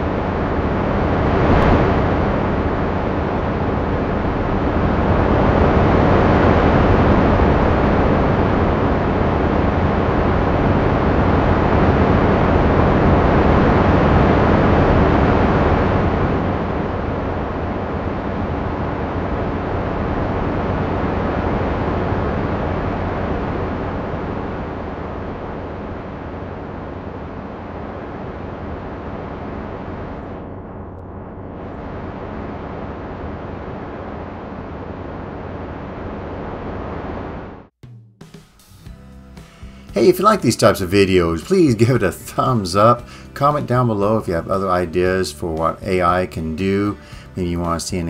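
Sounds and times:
rushing wind: 0.0 - 37.7.

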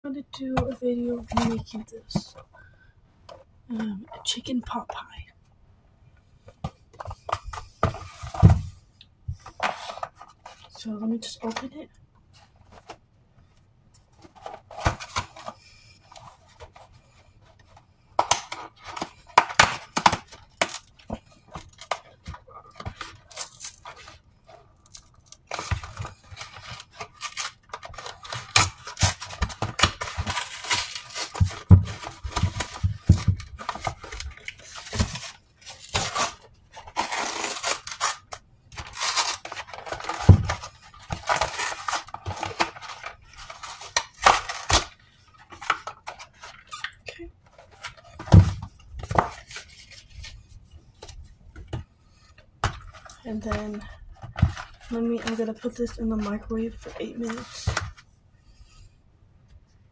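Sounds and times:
cardboard tearing and rustling: 14.2 - 16.9, 18.2 - 24.2, 24.9 - 46.9, 47.5 - 50.4.

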